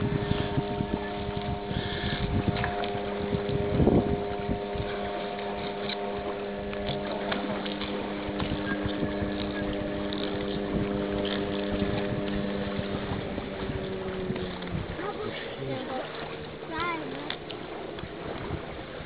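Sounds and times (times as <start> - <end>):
motorboat engine humming: 0.0 - 19.0.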